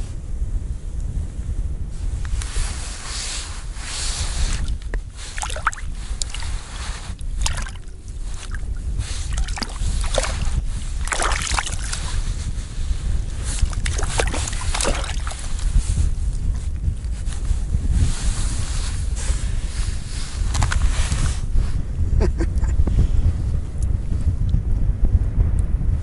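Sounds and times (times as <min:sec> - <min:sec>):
wind buffeting microphone: 0:00.0 - 0:26.0
clothing rustling and scraping: 0:01.9 - 0:21.8.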